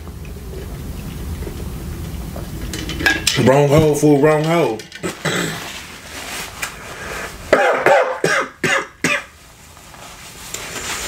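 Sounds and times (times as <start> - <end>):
man coughing: 5.0 - 5.7, 7.5 - 9.3.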